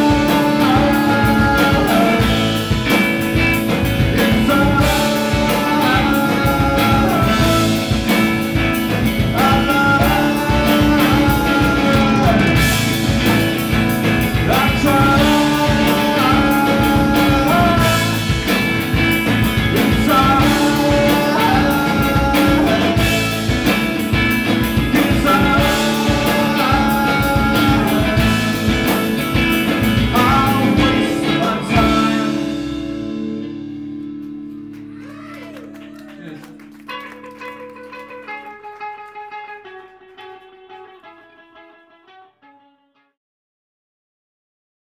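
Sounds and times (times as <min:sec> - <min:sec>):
drum beat: 0:00.0 - 0:32.0
man singing: 0:00.0 - 0:33.0
electric guitars: 0:00.0 - 0:42.6.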